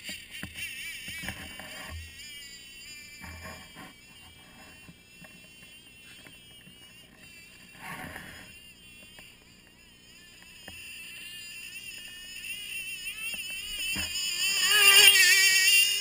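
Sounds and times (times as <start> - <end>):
model snowmobile motor whine: 0.0 - 16.0.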